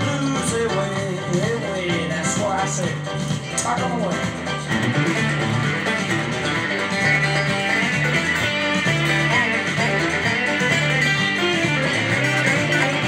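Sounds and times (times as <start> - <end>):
steady bass line: 0.0 - 13.0
electric guitar solo: 4.5 - 13.0.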